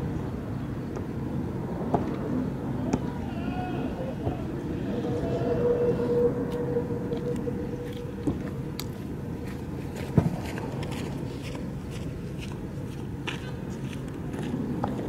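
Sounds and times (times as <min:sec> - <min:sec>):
idling vehicle engines rumbling: 0:00.0 - 0:15.0
held tone: 0:04.1 - 0:09.4.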